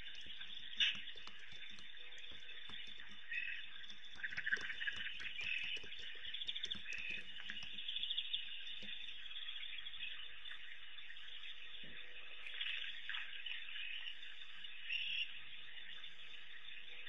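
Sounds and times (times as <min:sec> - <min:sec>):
frogs and insects trilling: 0:00.0 - 0:17.0
scattered clicks: 0:00.1 - 0:08.1.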